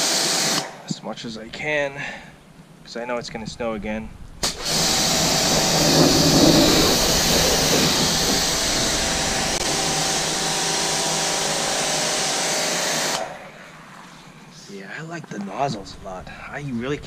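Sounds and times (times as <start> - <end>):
water jet hissing: 1.5 - 14.8
pressure washer pump humming: 4.4 - 14.6.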